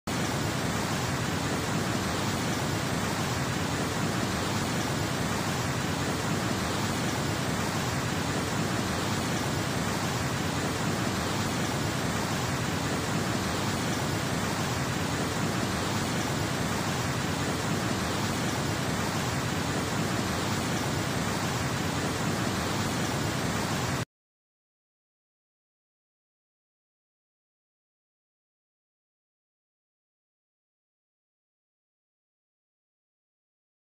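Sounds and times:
floodwater rushing: 0.1 - 24.0.

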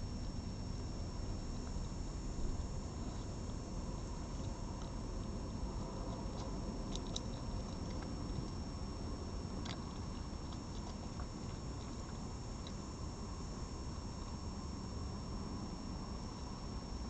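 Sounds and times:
fox chewing clicks and taps: 9.6 - 12.8.

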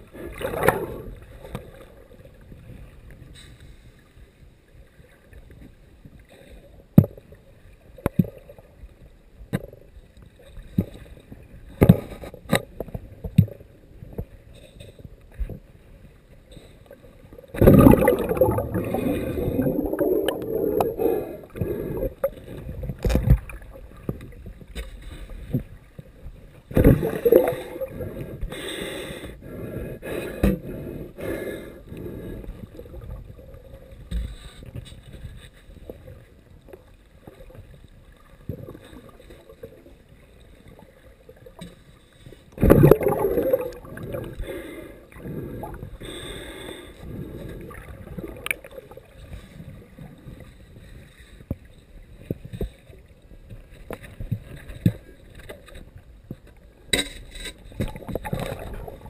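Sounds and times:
gurgling bubble bursts: 17.5 - 23.7, 26.7 - 28.1, 42.6 - 44.4.

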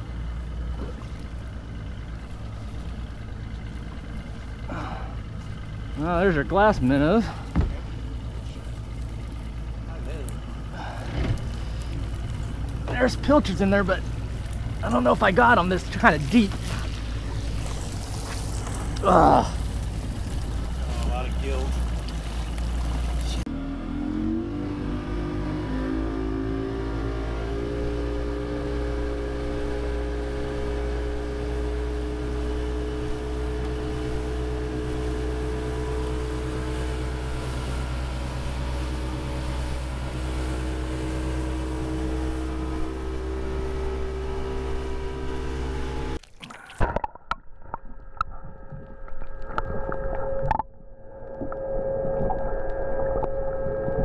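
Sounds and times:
motorboat engine running: 0.0 - 54.0
underwater clicks and knocks: 7.5 - 8.0, 46.2 - 54.0
faint steady hum: 47.6 - 54.0.

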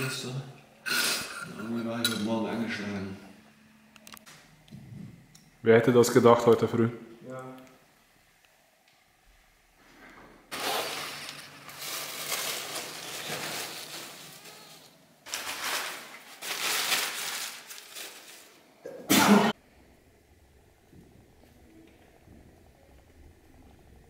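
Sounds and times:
paper rustling: 10.5 - 18.6.

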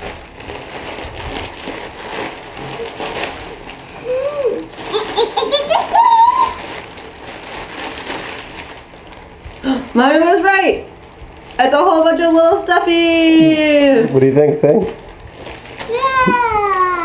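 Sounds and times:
plastic bag crinkling: 0.0 - 17.0
child giggling and squealing: 4.0 - 6.6, 15.9 - 17.0.

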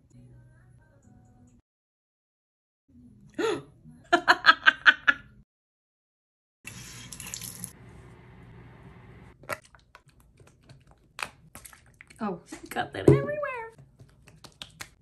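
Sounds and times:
hands patting face: 13.8 - 15.0.

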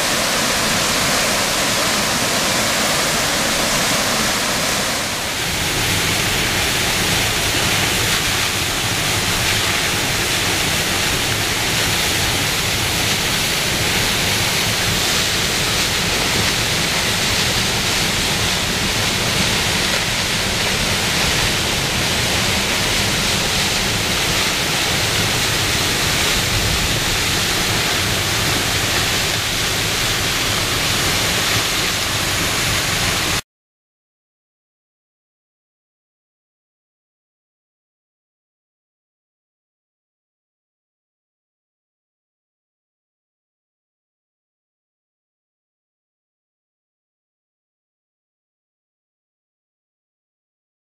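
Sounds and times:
waterfall rushing onto rocks: 0.0 - 33.4.

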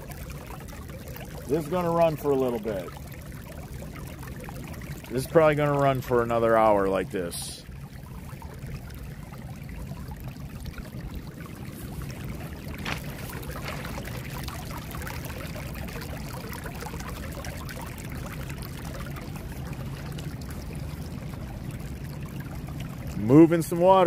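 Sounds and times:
water welling into a pool: 0.0 - 24.0.

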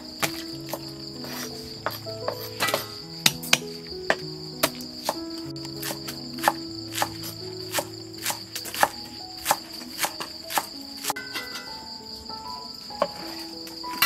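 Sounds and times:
crickets chirping: 0.0 - 14.0
soft background music: 0.0 - 14.0
cleaver chopping on wooden board: 5.8 - 10.7.

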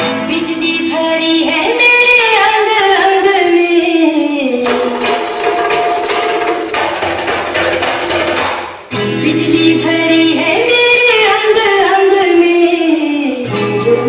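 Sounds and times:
recorded song with singing: 0.0 - 6.0, 8.9 - 14.0.

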